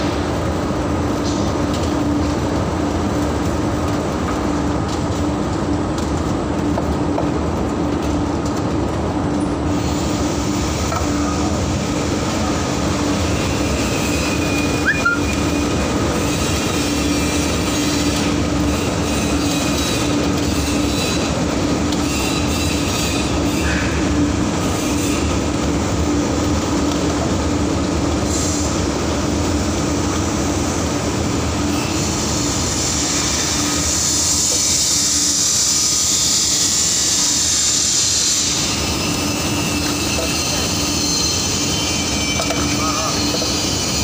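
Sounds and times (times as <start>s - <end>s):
factory machinery and conveyors running: 0.0s - 44.0s
brief squeak: 14.1s - 15.5s, 39.0s - 44.0s.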